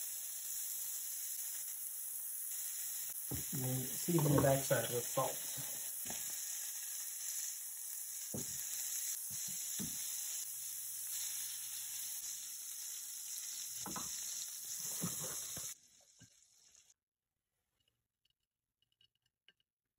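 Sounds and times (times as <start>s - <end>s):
sizzling in a skillet: 0.0s - 17.0s.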